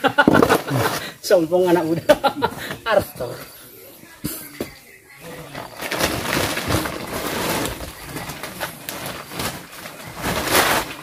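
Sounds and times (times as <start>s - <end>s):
plastic tarp and sack rustling: 5.4s - 11.0s.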